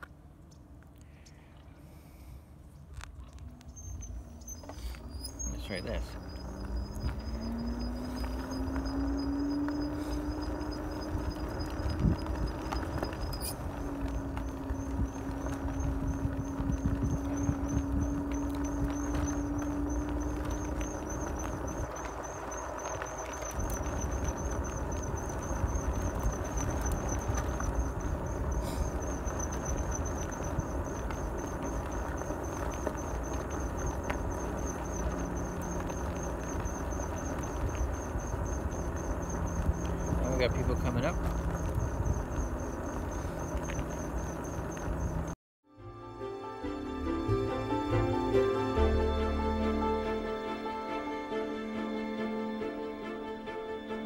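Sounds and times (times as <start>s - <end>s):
road noise: 0.0s - 54.0s
wind noise: 2.9s - 45.4s
electric motor whine: 5.6s - 45.2s.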